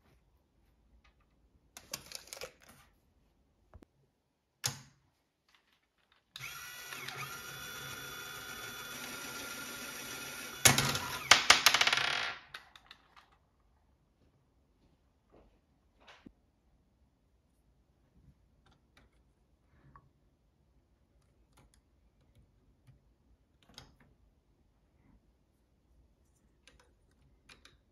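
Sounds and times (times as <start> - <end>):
electric motor and gears whining: 6.4 - 11.3
small plastic clicks: 26.6 - 27.9.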